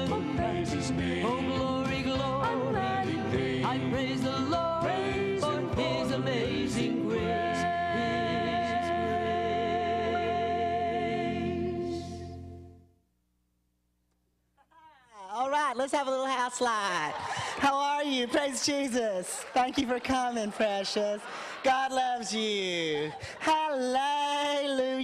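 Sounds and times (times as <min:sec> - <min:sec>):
person singing gospel song: 0:00.0 - 0:12.4, 0:21.3 - 0:25.0
band backing: 0:00.0 - 0:12.7.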